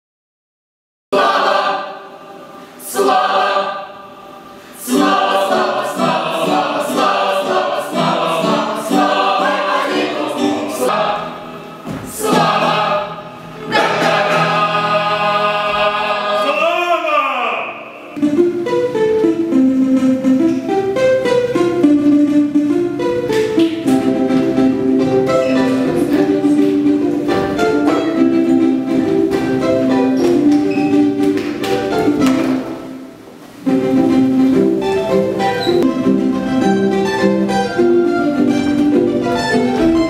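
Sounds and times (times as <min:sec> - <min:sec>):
choir singing: 0:01.2 - 0:18.2, 0:23.8 - 0:31.2.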